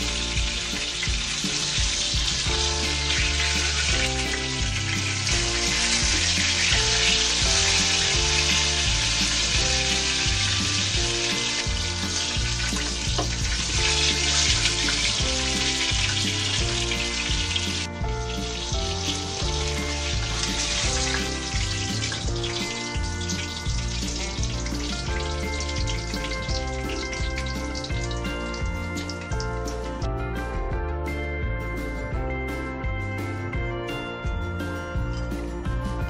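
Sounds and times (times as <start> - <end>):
chicken sizzling in oil: 0.0 - 30.1
background music with bass: 0.0 - 36.0.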